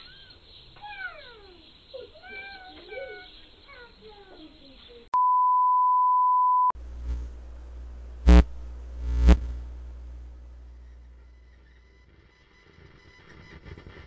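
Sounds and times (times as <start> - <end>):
steady test-tone beep: 5.2 - 6.8
low hum: 6.7 - 11.9.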